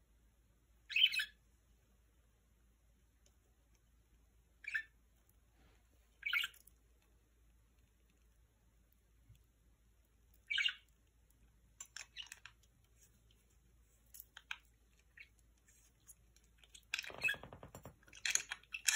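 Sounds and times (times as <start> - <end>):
budgerigar chirping and clicking: 0.9 - 1.4, 4.6 - 5.0, 10.4 - 11.1, 11.8 - 12.7, 14.4 - 15.4, 16.5 - 18.9.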